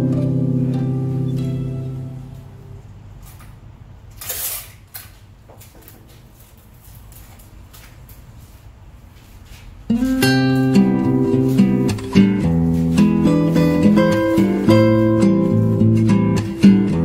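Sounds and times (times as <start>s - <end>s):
bouquet wrapping rustling: 10.4s - 16.7s.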